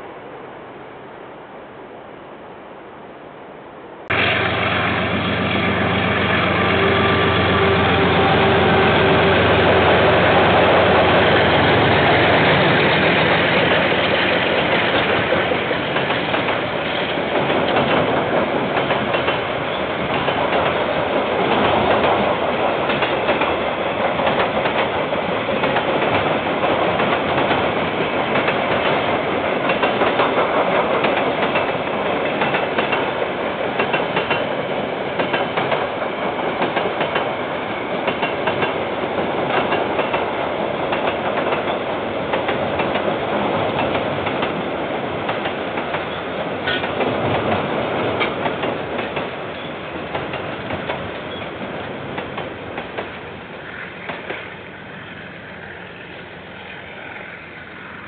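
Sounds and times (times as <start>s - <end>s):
train wheels rumbling on rails: 4.1s - 58.0s.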